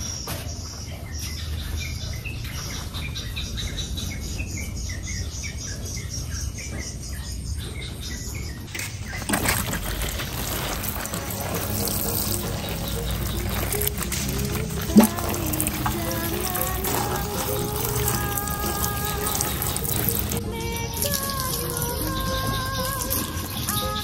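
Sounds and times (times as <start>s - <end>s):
bird chirping falling notes: 0.0s - 24.0s
water splashing from watering can: 8.7s - 24.0s.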